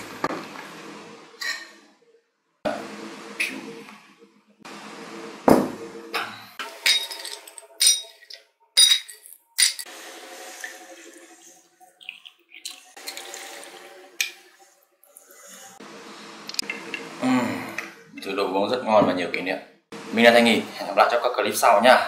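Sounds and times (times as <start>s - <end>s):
ice cubes clinking in glass: 6.8s - 9.9s.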